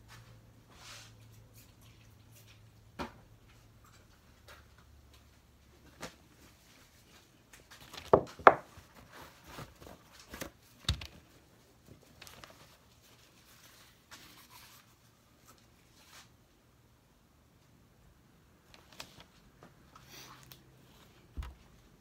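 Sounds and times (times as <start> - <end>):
soft rustling: 8.7 - 16.4.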